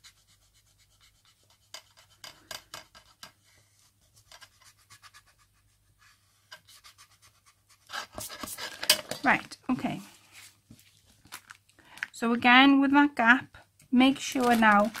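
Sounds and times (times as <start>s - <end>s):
pencil scratching on paper: 0.0s - 8.9s.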